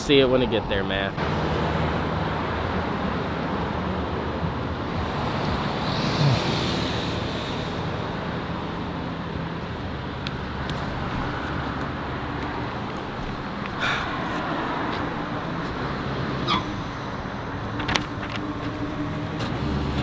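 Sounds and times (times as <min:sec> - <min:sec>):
passing cars: 0:00.0 - 0:20.0
loud car passing by: 0:01.2 - 0:09.2.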